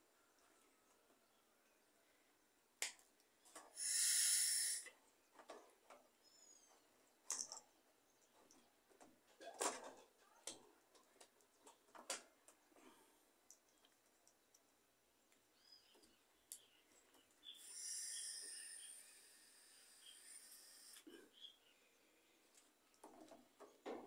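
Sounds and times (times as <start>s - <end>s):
loud hiss: 3.8s - 4.9s, 17.5s - 21.0s.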